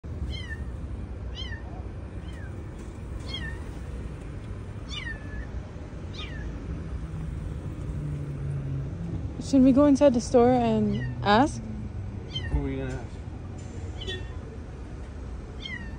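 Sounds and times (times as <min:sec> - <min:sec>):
kitten meowing: 0:00.3 - 0:00.7, 0:01.3 - 0:02.6, 0:03.2 - 0:03.7, 0:04.9 - 0:06.6, 0:12.2 - 0:12.6, 0:14.0 - 0:14.4, 0:15.6 - 0:15.9.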